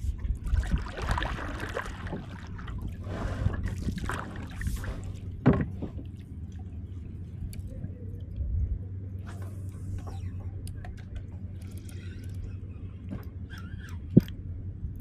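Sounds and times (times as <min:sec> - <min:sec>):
paddle splashing water: 0:00.0 - 0:07.4
low rumble: 0:00.0 - 0:15.0.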